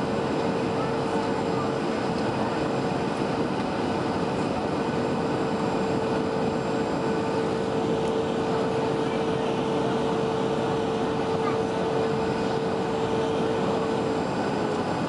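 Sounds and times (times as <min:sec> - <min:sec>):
aircraft cabin engine and airflow rush: 0:00.0 - 0:15.0
constant hum: 0:00.0 - 0:15.0.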